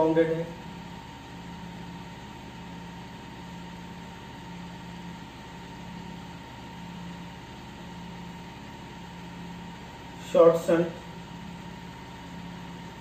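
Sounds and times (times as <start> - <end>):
mechanical hum: 0.0 - 13.0.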